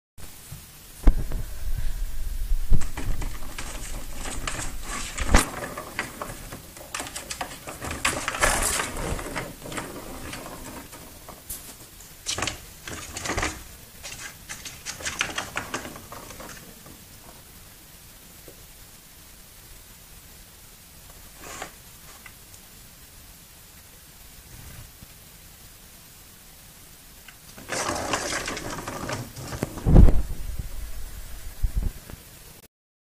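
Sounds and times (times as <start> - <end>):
ball rolling in plastic track: 2.6 - 17.6, 27.4 - 31.1.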